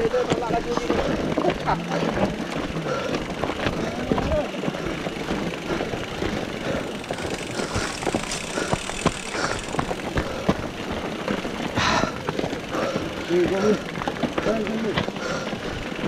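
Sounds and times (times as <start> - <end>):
mountain bikes rattling on gravel: 0.0 - 16.0.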